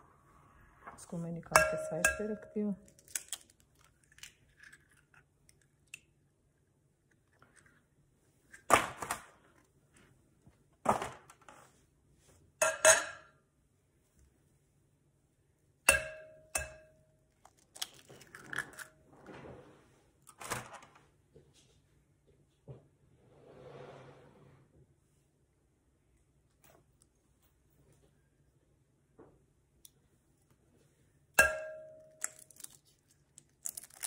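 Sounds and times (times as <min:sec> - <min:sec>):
glass bowl ringing: 0:01.5 - 0:02.6, 0:15.9 - 0:17.0, 0:31.4 - 0:32.2
eggshells cracking: 0:02.8 - 0:06.1, 0:17.4 - 0:18.9, 0:32.2 - 0:34.0
shell crackling and rustling: 0:02.8 - 0:06.1, 0:17.4 - 0:18.9, 0:32.2 - 0:34.0.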